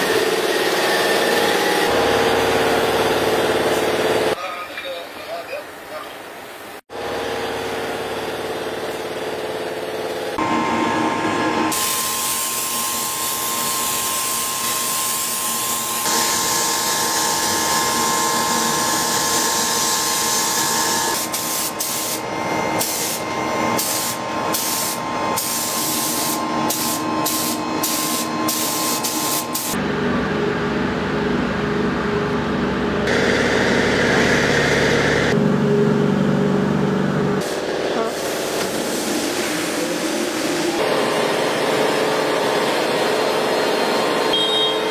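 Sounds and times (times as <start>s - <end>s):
paint spray gun hissing: 11.7s - 16.6s, 19.2s - 23.2s, 23.8s - 29.8s.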